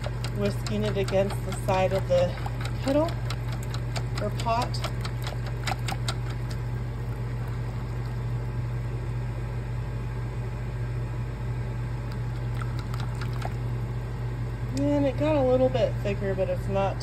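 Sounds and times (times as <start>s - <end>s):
whisk stirring liquid in pot: 0.0s - 8.4s, 12.4s - 13.5s
whisk tapping pot: 0.0s - 8.4s, 12.2s - 13.6s
steady low hum: 0.0s - 17.0s.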